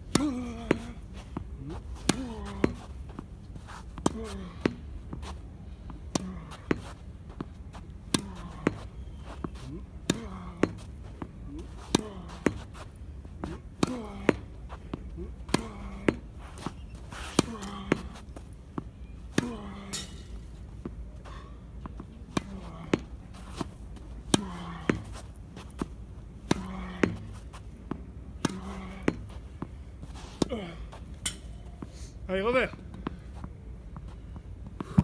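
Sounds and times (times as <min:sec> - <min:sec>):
racket striking tennis ball: 0:00.1 - 0:03.1, 0:06.1 - 0:21.0, 0:21.8 - 0:31.8
person grunting: 0:00.2 - 0:01.0, 0:30.4 - 0:30.9
tennis ball hitting wall: 0:13.4 - 0:16.3, 0:17.2 - 0:18.2, 0:19.4 - 0:21.0, 0:24.3 - 0:25.2, 0:25.8 - 0:29.8.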